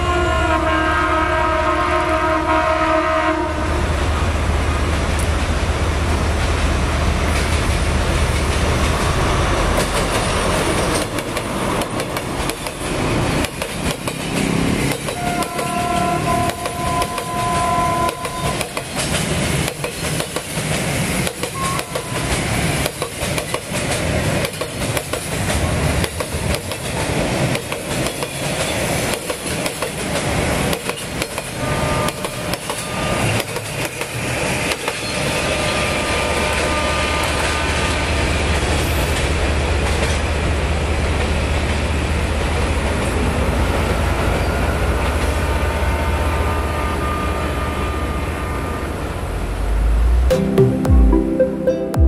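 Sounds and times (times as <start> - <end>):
train wheels clacking on rail joints: 7.3 - 35.3
short high steady tone: 50.3 - 52.0.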